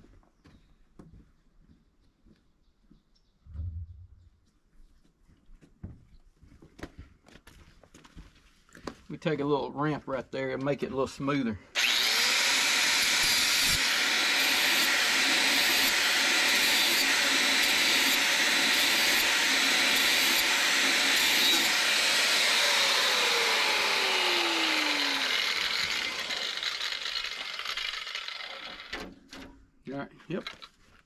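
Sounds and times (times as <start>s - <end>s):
angle grinder grinding steel: 11.8s - 29.1s.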